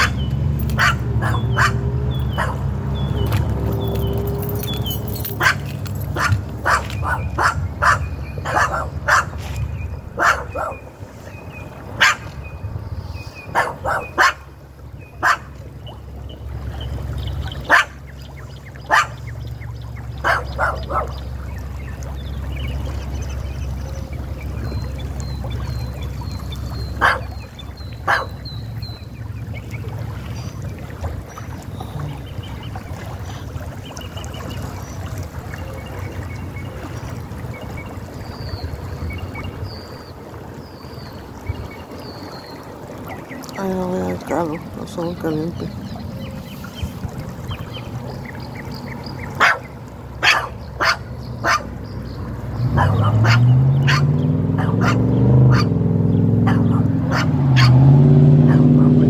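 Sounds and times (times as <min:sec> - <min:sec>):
dog barking: 0:00.8 - 0:02.6, 0:05.4 - 0:09.4, 0:10.2 - 0:10.8, 0:12.0 - 0:12.3, 0:13.5 - 0:14.5, 0:15.2 - 0:15.5, 0:17.7 - 0:18.0, 0:18.9 - 0:19.2, 0:20.2 - 0:21.2, 0:27.0 - 0:27.3, 0:28.1 - 0:28.4, 0:49.4 - 0:51.7, 0:52.7 - 0:55.7, 0:56.4 - 0:57.8, 0:58.4 - 0:59.0.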